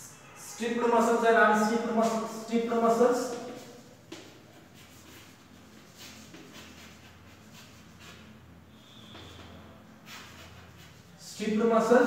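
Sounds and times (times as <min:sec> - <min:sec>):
chalk scratching on blackboard: 0:01.6 - 0:11.3
chalk squeak: 0:03.3 - 0:11.2.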